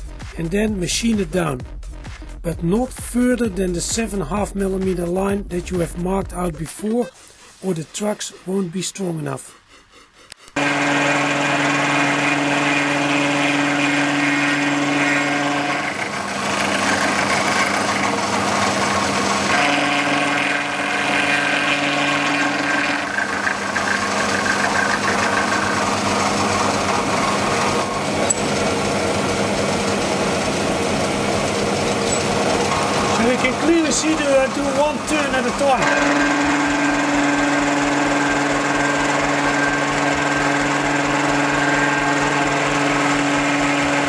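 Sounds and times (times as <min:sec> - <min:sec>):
milling machine cutting metal: 0:10.5 - 0:44.0.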